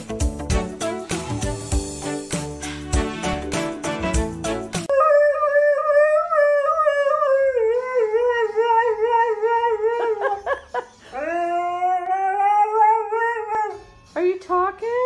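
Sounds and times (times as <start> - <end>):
dog howling: 4.9 - 10.4, 11.2 - 13.8.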